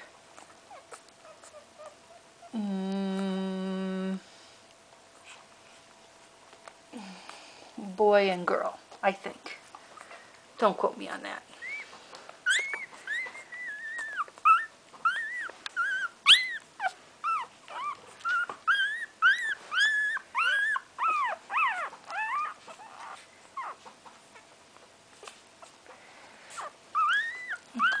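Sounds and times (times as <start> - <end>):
puppy crying in high squeals: 12.4 - 23.8, 26.6 - 28.0.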